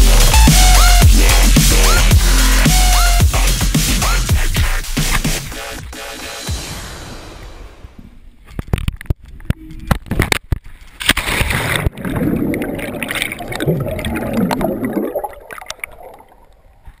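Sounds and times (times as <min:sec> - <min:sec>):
loud splash into water: 0:11.1 - 0:16.4
underwater gurgling and bubbling: 0:11.5 - 0:16.9.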